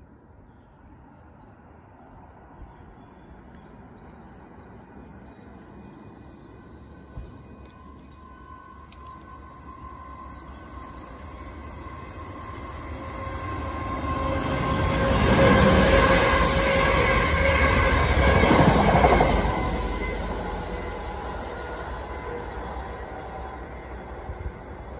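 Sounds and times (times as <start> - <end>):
train wheels on rails: 5.6 - 24.9.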